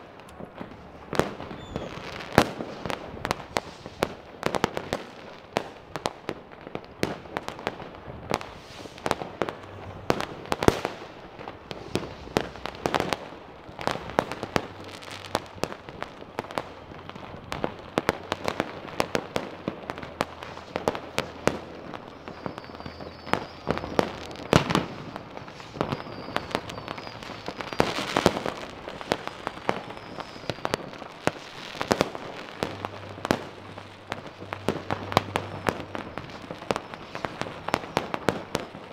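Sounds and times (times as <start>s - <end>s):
fireworks and firecrackers banging: 0.0s - 38.9s.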